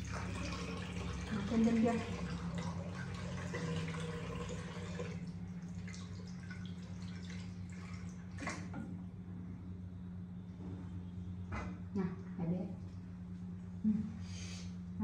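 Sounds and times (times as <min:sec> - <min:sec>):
tap water running: 0:00.0 - 0:08.8
water dripping and splashing: 0:00.0 - 0:08.8.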